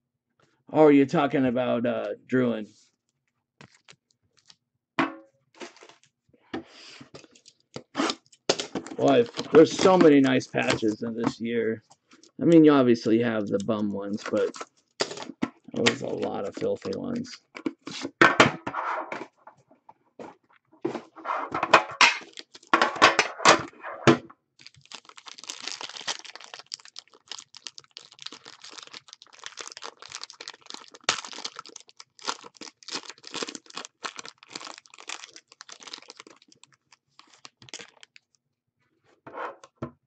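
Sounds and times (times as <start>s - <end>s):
foil wrapper crinkling and tearing: 3.6s - 4.6s, 7.2s - 11.0s, 13.6s - 17.2s, 22.2s - 22.7s, 24.6s - 38.4s.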